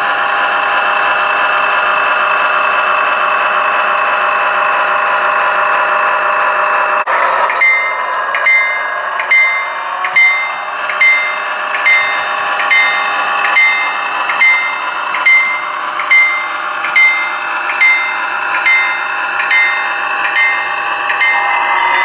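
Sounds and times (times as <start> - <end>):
diesel engine running: 0.0 - 22.0
model locomotive bell ringing: 7.4 - 22.0.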